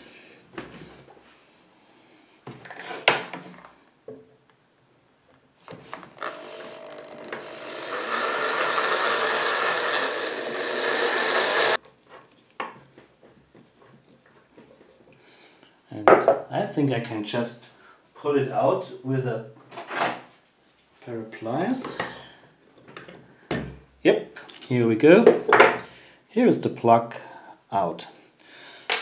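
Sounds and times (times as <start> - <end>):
electric drill boring into brass: 6.2 - 11.8.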